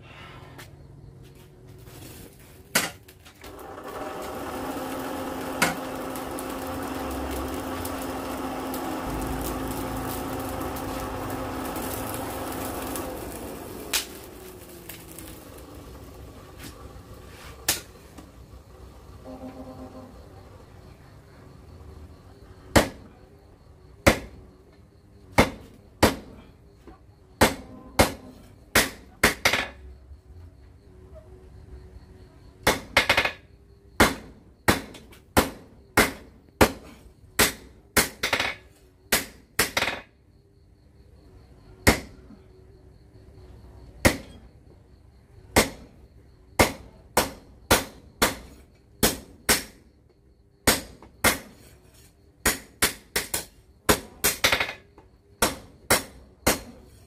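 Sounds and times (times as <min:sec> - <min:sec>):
hammer striking hot steel on anvil: 0:05.4 - 0:14.2, 0:17.7 - 0:17.9, 0:25.4 - 0:26.3, 0:27.4 - 0:29.6, 0:34.0 - 0:40.0, 0:44.0 - 0:44.4, 0:46.6 - 0:49.8, 0:50.6 - 0:51.7, 0:55.4 - 0:56.8.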